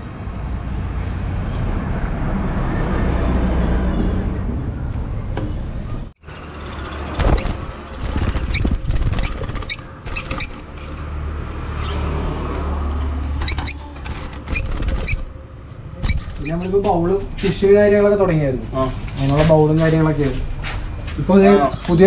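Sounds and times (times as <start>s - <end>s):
lovebirds chirping: 6.2s - 11.0s, 13.3s - 17.4s.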